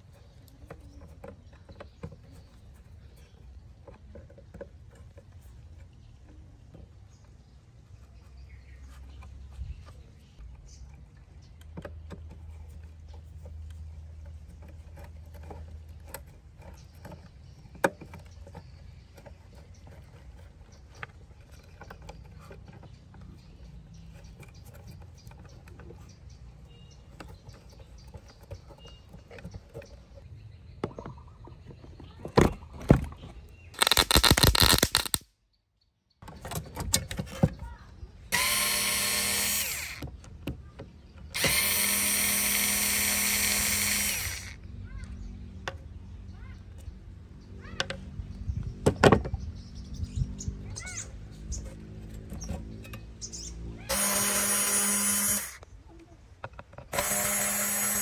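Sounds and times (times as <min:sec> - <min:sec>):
screwdriver scraping screws: 0:33.8 - 0:35.2, 0:38.3 - 0:40.1, 0:41.3 - 0:44.6, 0:53.9 - 0:55.6, 0:56.9 - 0:58.0
electric screwdriver motor whine: 0:38.3 - 0:40.0, 0:41.4 - 0:44.6, 0:53.9 - 0:55.6, 0:56.9 - 0:58.0.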